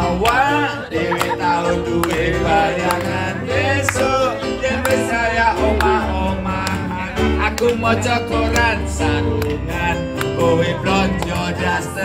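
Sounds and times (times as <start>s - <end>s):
musical accompaniment: 0.9s - 12.0s
woman singing off-key: 1.1s - 1.8s.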